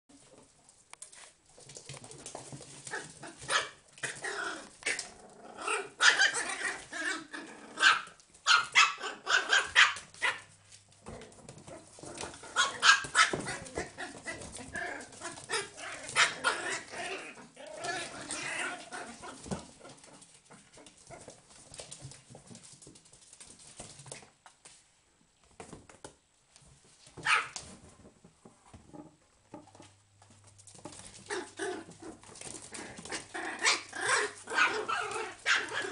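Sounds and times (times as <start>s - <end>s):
puppies barking and yapping: 5.7s - 10.4s, 11.6s - 21.3s, 31.2s - 35.9s.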